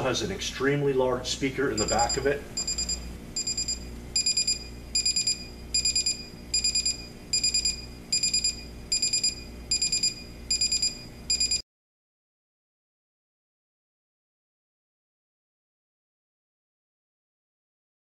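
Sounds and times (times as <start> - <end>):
alarm clock beeping: 1.8 - 11.6.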